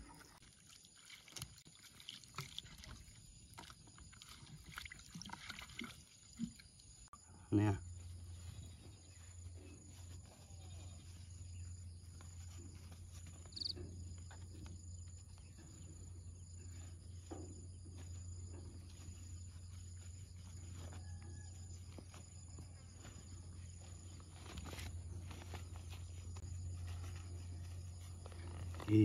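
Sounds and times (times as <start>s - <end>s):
steady low hum: 21.5s - 29.0s.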